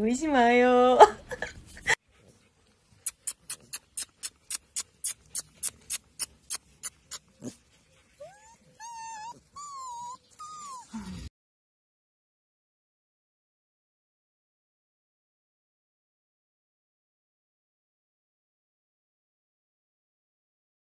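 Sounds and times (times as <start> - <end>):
puppies whining: 2.9 - 11.3
even ticks: 3.0 - 7.3.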